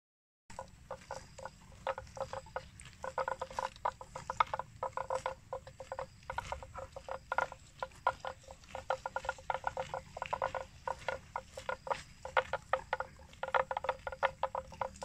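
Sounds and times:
grass tearing and chewing: 0:00.5 - 0:15.0.

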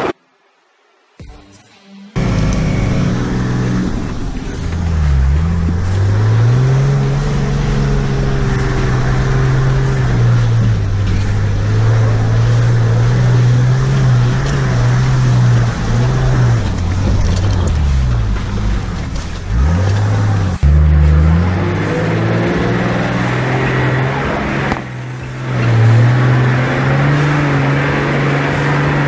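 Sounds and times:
diesel engine pulling uphill: 0:02.2 - 0:29.0
truck knocks and rattles: 0:03.4 - 0:23.4.

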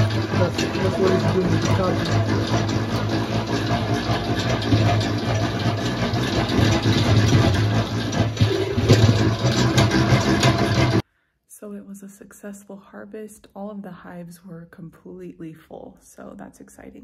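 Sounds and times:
honey extractor humming: 0:00.0 - 0:11.0.

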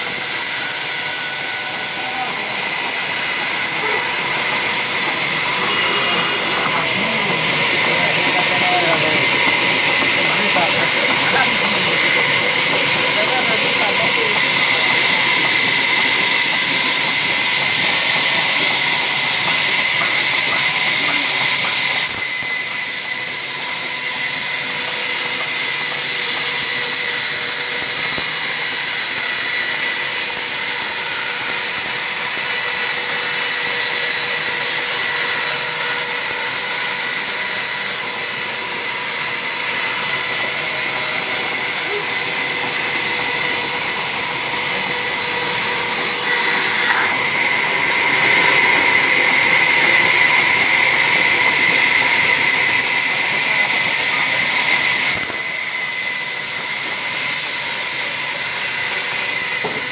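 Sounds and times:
sawmill saw cutting log: 0:00.0 - 0:59.9.

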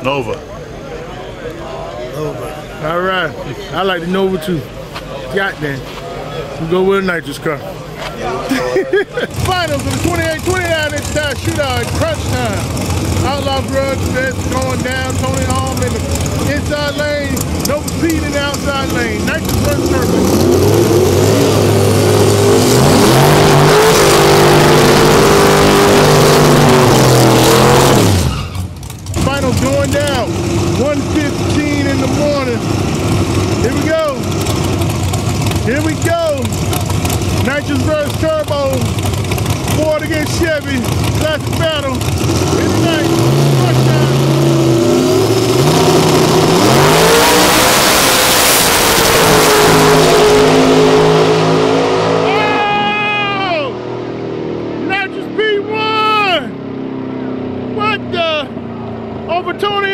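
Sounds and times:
race car engine at high revs: 0:09.1 - 0:59.9.

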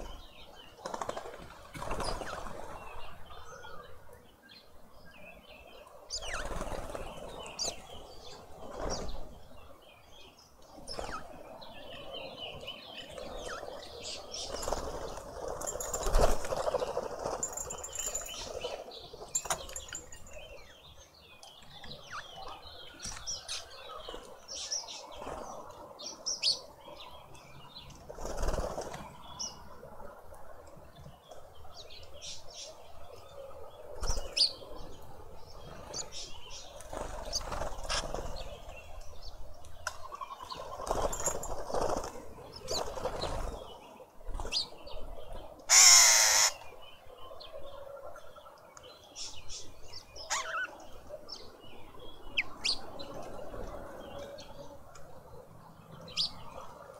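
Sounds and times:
small birds chirping: 0:00.0 - 0:29.8, 0:30.8 - 0:56.9
wing flapping: 0:00.8 - 0:02.8, 0:14.4 - 0:18.7, 0:28.1 - 0:29.1, 0:40.5 - 0:43.6.

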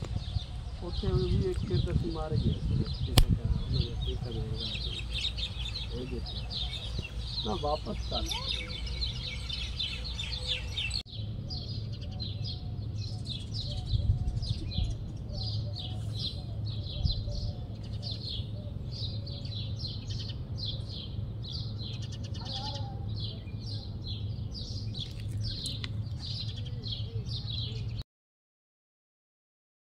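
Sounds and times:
small birds chirping: 0:00.0 - 0:28.0.

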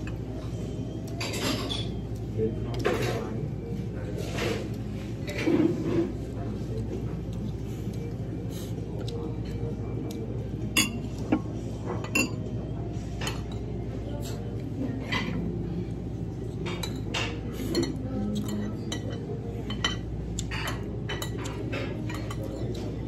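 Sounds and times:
cutlery clinking on plates: 0:01.0 - 0:03.4, 0:10.6 - 0:15.6, 0:16.5 - 0:23.0.

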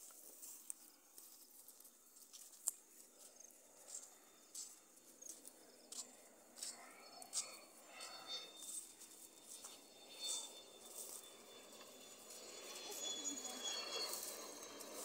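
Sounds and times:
leaves and grass rustling: 0:00.0 - 0:05.5
footsteps on dirt path: 0:00.0 - 0:13.1, 0:13.7 - 0:15.0.

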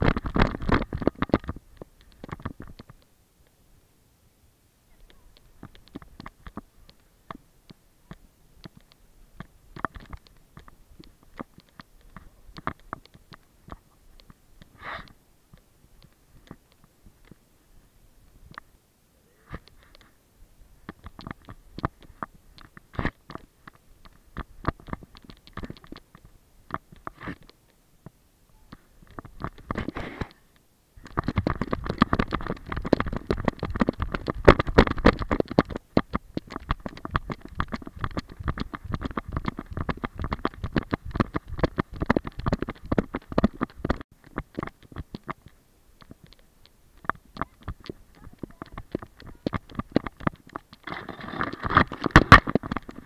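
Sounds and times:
dense clatter and rumble: 0:00.0 - 0:01.6, 0:31.0 - 0:45.4
camera harness knocks and rubs: 0:47.6 - 0:53.0.

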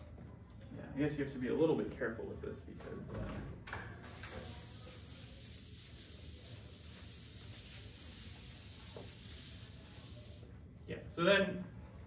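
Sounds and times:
eraser rubbing a chalkboard: 0:04.0 - 0:10.5.

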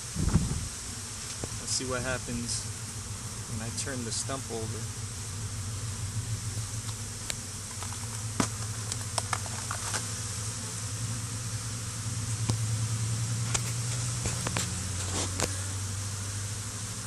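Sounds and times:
bees buzzing: 0:00.0 - 0:17.0
knocks and rustles: 0:07.6 - 0:10.1.

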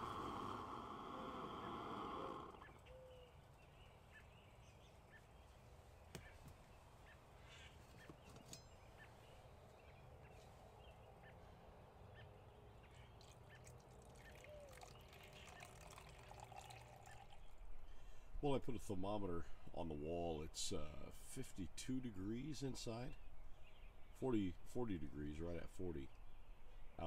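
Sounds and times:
faint bird chirps: 0:00.2 - 0:16.2.

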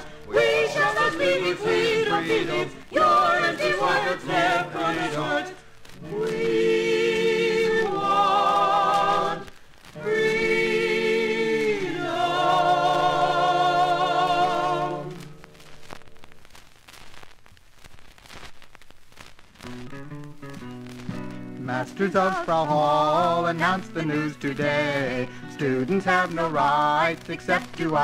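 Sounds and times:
group singing in harmony: 0:00.0 - 0:15.4, 0:21.8 - 0:28.0
vinyl record crackle and clicks: 0:00.0 - 0:28.0.

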